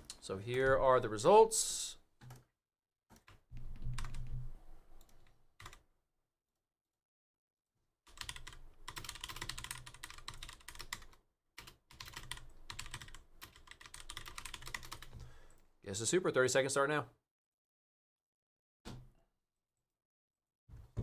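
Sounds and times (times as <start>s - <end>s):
typing on keyboard: 3.1s - 4.4s, 5.0s - 5.8s, 8.1s - 15.2s.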